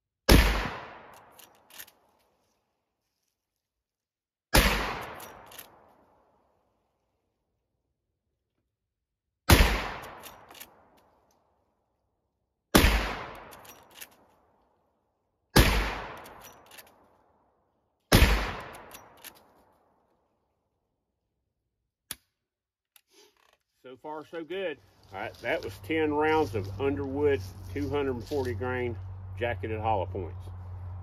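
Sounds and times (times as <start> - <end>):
rifle shots: 0.3 - 1.4, 4.5 - 5.8, 9.5 - 10.8, 12.7 - 13.7, 15.6 - 16.5, 18.1 - 19.2
rifle lever clicks: 1.1 - 2.0, 5.2 - 5.7, 10.2 - 10.7, 16.2 - 17.0.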